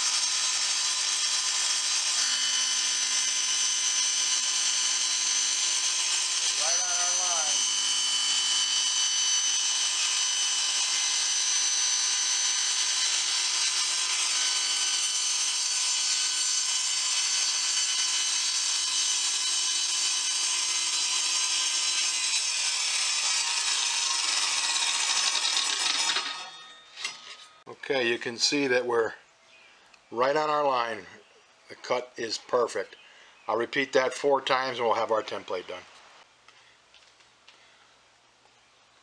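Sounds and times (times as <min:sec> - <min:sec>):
table saw whining: 0:00.0 - 0:27.7.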